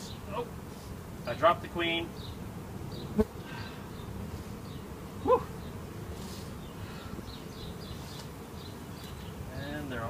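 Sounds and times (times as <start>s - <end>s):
bees buzzing: 0.0s - 10.0s.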